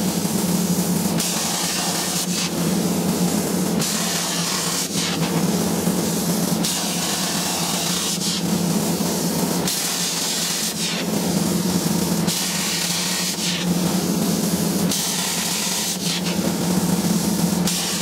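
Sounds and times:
steady low hum: 0.0s - 9.7s
plasma cutter hissing: 0.0s - 18.0s.

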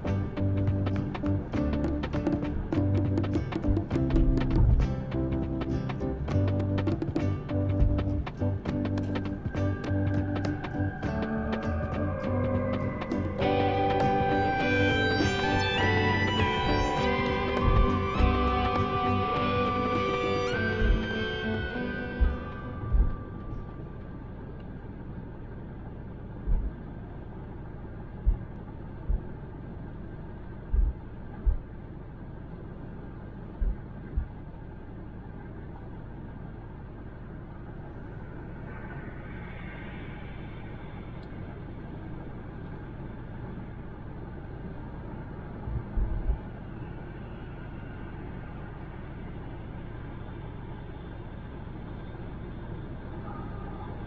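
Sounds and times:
short low thumps: 0.0s - 23.8s, 26.4s - 26.8s, 28.2s - 29.4s, 30.6s - 31.8s, 33.6s - 34.4s
tyre and road noise: 0.0s - 54.0s.

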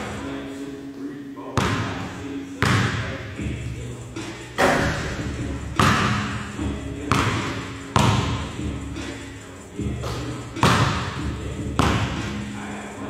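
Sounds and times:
basketball bouncing on court floor: 1.6s - 2.0s, 2.6s - 3.0s, 5.8s - 6.3s, 7.1s - 8.4s, 10.6s - 11.1s, 11.8s - 12.2s
basketball hitting rim and backboard: 1.6s - 2.0s, 2.6s - 3.1s, 4.6s - 6.4s, 7.0s - 8.5s, 10.0s - 12.4s.

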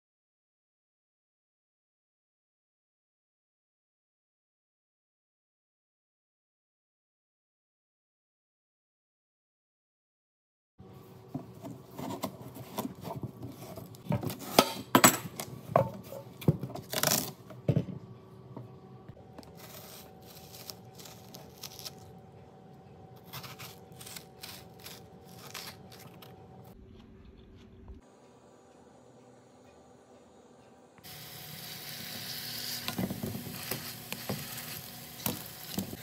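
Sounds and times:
spoon scraping melon flesh: 19.4s - 22.0s, 23.2s - 26.8s
knife cracking watermelon rind: 19.4s - 22.1s, 23.2s - 26.4s.

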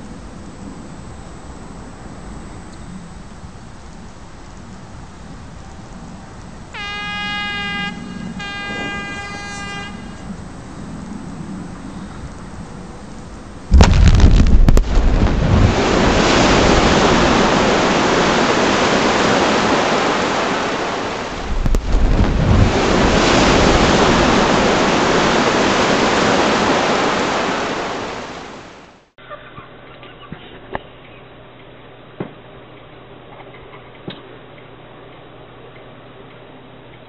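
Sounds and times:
explosive blast bang: 13.7s - 17.2s
rushing falling rock and snow: 13.7s - 28.4s.

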